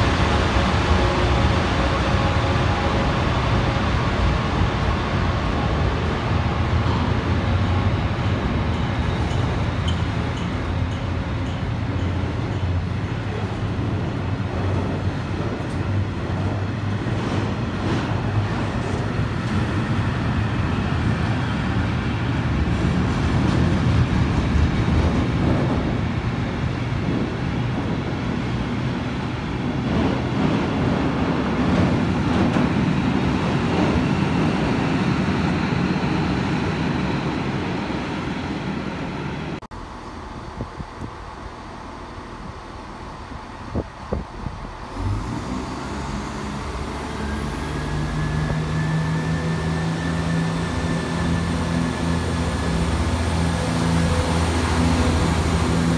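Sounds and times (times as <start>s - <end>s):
freight train wheels rumbling on rails: 0.0s - 55.9s.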